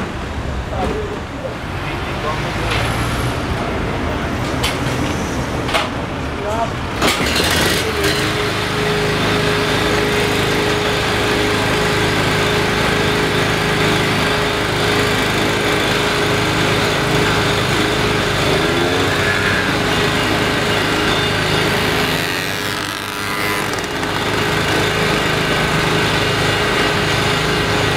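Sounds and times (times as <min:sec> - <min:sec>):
garden shredder humming: 0:07.0 - 0:27.9.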